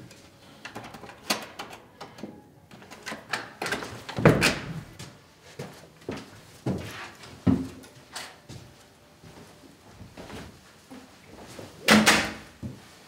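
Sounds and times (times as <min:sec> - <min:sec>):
shuffling steps: 0:03.8 - 0:11.8, 0:12.5 - 0:13.0.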